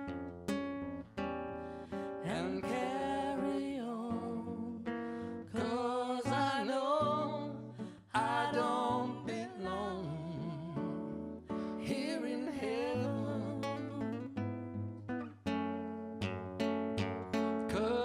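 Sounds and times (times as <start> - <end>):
acoustic guitar: 0.0 - 18.0
person singing: 2.1 - 14.4, 17.7 - 18.0.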